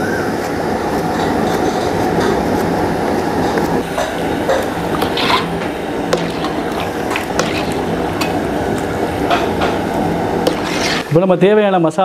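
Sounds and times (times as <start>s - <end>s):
gas burner roaring: 0.0s - 11.5s
ladle scraping and knocking pot: 3.5s - 8.5s, 9.2s - 11.1s.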